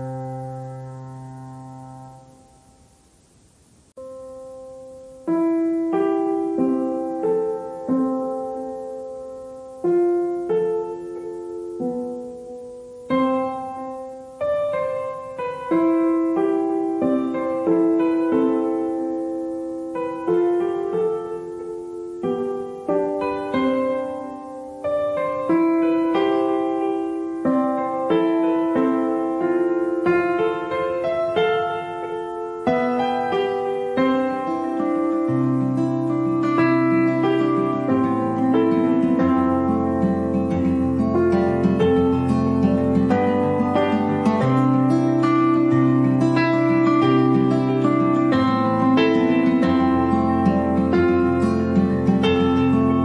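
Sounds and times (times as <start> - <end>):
slow piano music: 0.0 - 3.0, 3.9 - 53.0.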